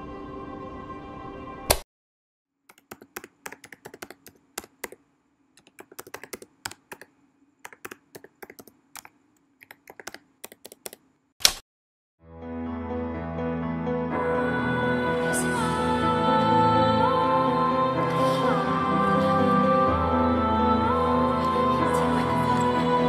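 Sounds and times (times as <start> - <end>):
computer keyboard typing: 2.7 - 5.0, 5.6 - 11.0.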